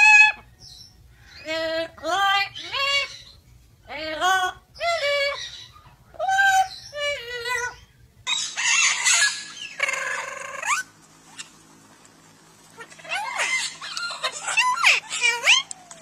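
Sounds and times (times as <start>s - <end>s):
parrot vocalizing: 0.0s - 0.6s, 1.4s - 11.5s, 12.8s - 16.0s
harsh noisy parrot call: 4.8s - 11.6s, 12.8s - 16.0s.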